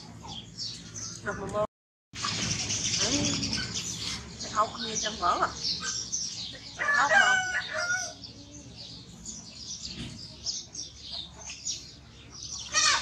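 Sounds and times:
small birds chirping: 0.0s - 13.0s
rooster crowing: 6.8s - 8.2s.

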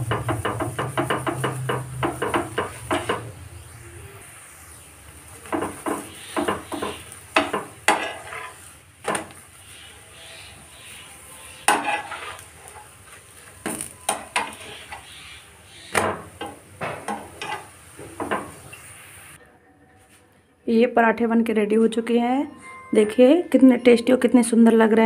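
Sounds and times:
frying sizzle: 0.0s - 19.4s
spoon scraping on hot pan: 0.1s - 3.3s, 5.4s - 19.3s.

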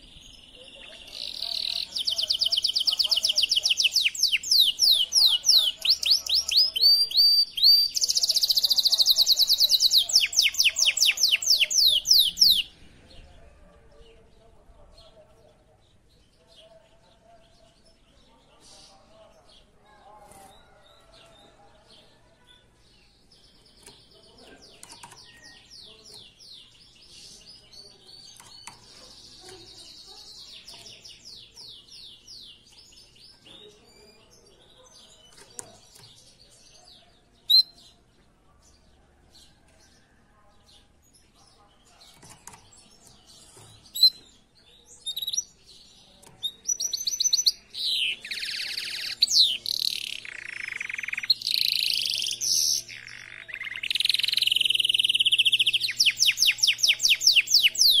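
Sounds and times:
canary singing trills: 0.0s - 12.8s, 22.5s - 38.1s, 41.1s - 58.0s.

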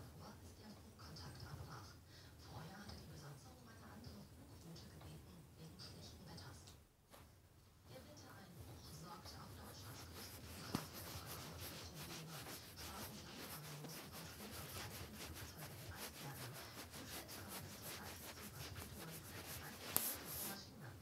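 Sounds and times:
microphone rubbing rustle: 9.8s - 20.6s.

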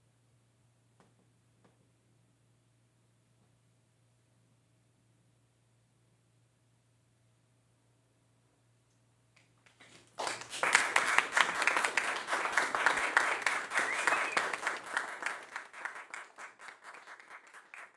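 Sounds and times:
audience applauding: 9.8s - 17.9s.

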